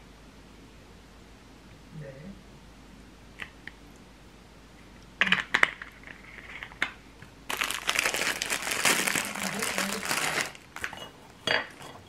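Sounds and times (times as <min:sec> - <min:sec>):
packaging crinkling: 0:07.5 - 0:11.0.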